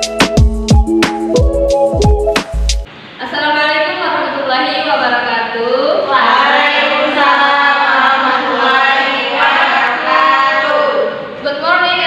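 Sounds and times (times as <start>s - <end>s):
upbeat electronic music: 0.0s - 2.9s.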